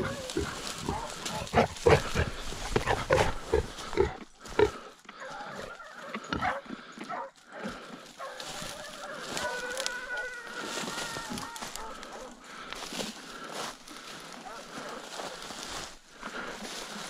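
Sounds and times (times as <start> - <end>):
wild boar squealing: 0.0 - 6.7, 8.2 - 12.3
wild boar grunting: 0.0 - 12.6.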